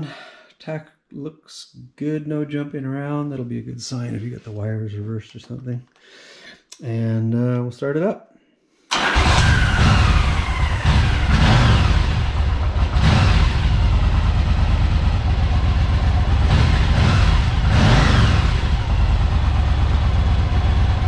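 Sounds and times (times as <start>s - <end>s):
motorcycle engine revving: 8.9s - 21.0s.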